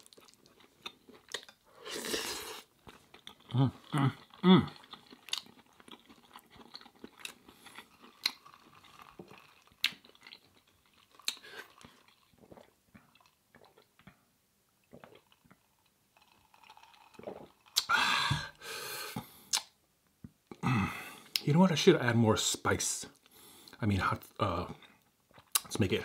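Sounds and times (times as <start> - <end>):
wet chewing mouth clicks: 3.2 - 12.6.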